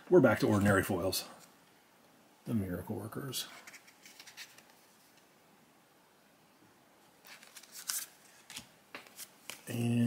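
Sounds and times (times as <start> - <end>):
trading cards sliding and flicking: 3.6 - 5.2, 7.2 - 9.8.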